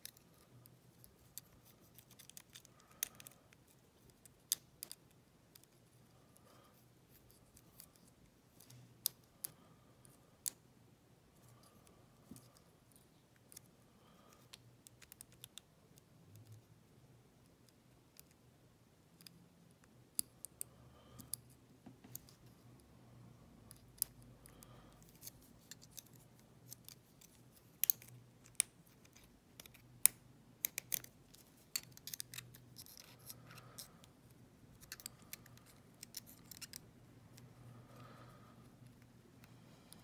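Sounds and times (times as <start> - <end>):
lock pick clicking and scraping: 1.0 - 5.7, 23.7 - 33.9, 34.7 - 37.5.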